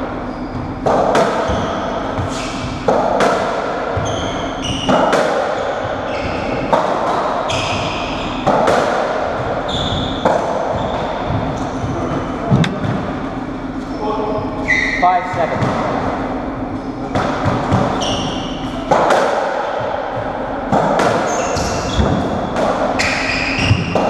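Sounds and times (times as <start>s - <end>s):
ball hitting walls echoing: 0.0s - 24.0s
trainers squeaking on wooden floor: 4.0s - 6.8s, 9.6s - 12.4s.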